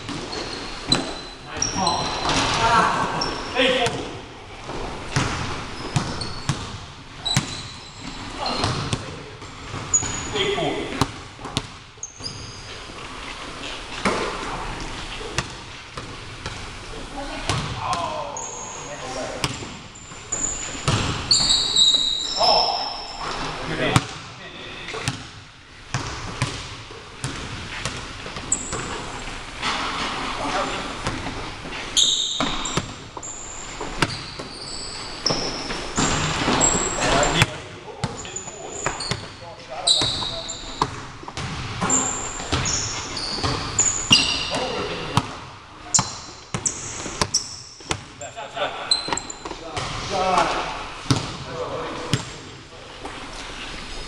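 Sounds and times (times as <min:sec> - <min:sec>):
sneaker squeaks: 0:00.0 - 0:04.1, 0:05.1 - 0:16.5, 0:17.4 - 0:24.2, 0:27.2 - 0:45.2, 0:45.8 - 0:48.1, 0:48.8 - 0:49.9, 0:53.0 - 0:54.0
basketball bouncing on wood floor: 0:20.8 - 0:21.5, 0:25.9 - 0:29.0, 0:40.0 - 0:48.0, 0:51.1 - 0:51.4
basketball bouncing on hardwood floor: 0:25.9 - 0:28.9.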